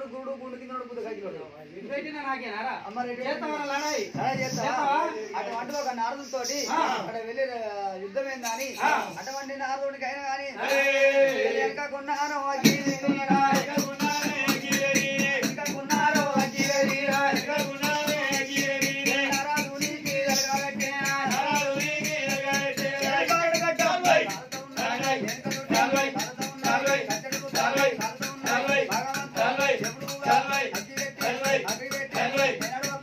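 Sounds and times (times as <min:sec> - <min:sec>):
men singing a folk song: 0:10.5 - 0:33.0.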